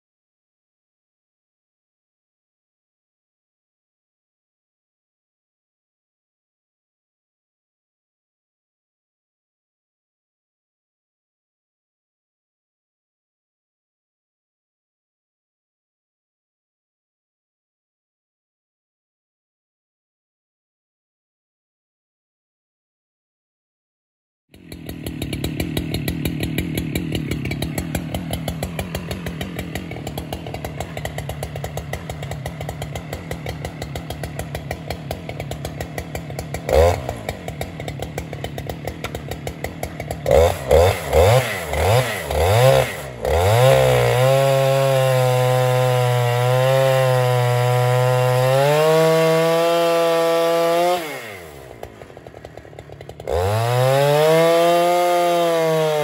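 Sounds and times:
chainsaw revving: 24.5 - 56.0.

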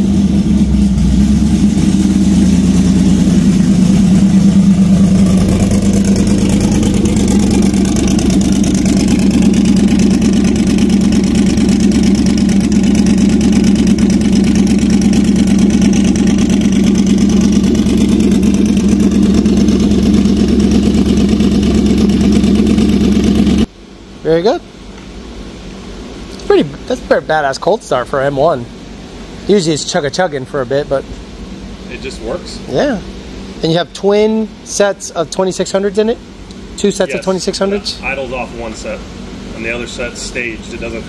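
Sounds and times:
car engine running: 0.0 - 23.7, 34.4 - 41.0.

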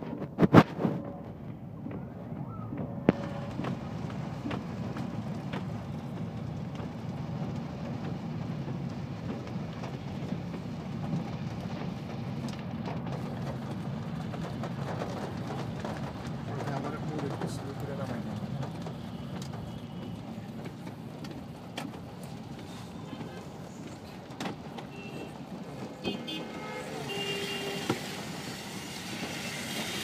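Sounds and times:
car engine and tyres on wet road: 0.0 - 30.0
rain on car windows: 3.1 - 30.0.

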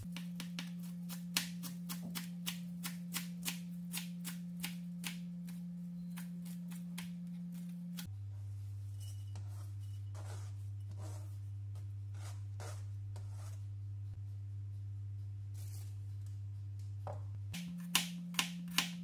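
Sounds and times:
steady low hum: 0.0 - 19.0
knife chopping on cutting board: 0.1 - 7.6, 17.6 - 19.0.

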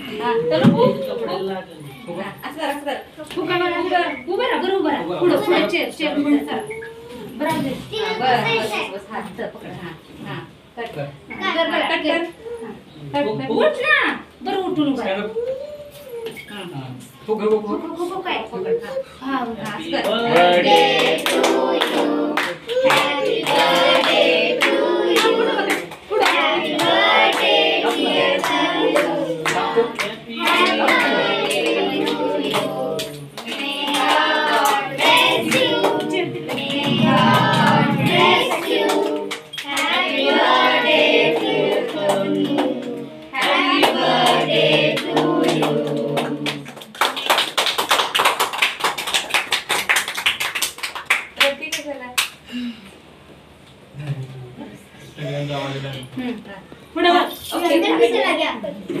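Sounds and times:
group singing a birthday song: 19.6 - 50.2
people clapping along: 19.7 - 52.4
applause: 46.4 - 52.4.

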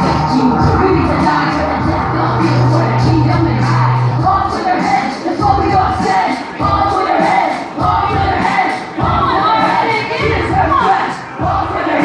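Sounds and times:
deep bass note: 0.0 - 4.3
loud room noise: 0.0 - 12.0.

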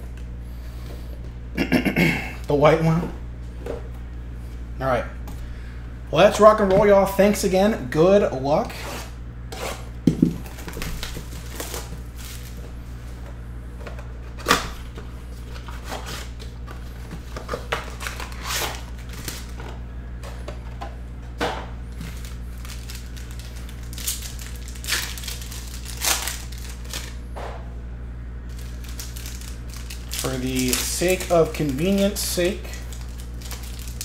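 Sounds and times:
steady low hum: 0.0 - 34.0
cardboard and wrapper crinkling: 10.4 - 12.6, 17.2 - 19.6, 22.0 - 27.2, 28.5 - 34.0
foil wrapper tearing: 10.5 - 12.6, 17.7 - 19.6, 22.0 - 27.2, 28.5 - 34.0.

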